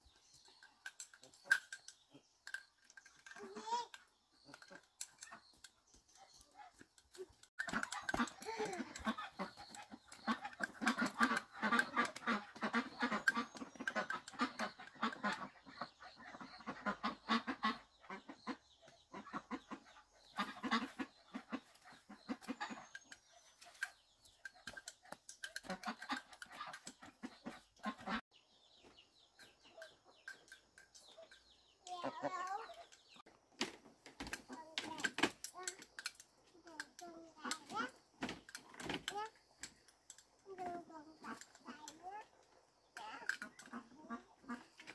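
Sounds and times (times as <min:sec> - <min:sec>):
ducks quacking: 0:07.6 - 0:23.5, 0:25.1 - 0:28.2, 0:40.6 - 0:42.3, 0:43.0 - 0:44.9.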